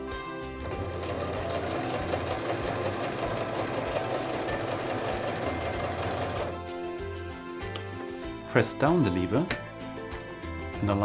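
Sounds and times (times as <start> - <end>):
electric sewing machine stitching: 0.6 - 6.6.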